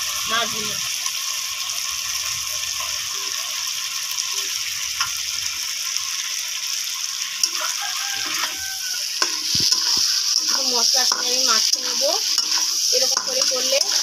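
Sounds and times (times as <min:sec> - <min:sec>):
masala sizzling in hot oil: 0:00.0 - 0:14.0
metal spatula clicking on pan: 0:09.2 - 0:14.0.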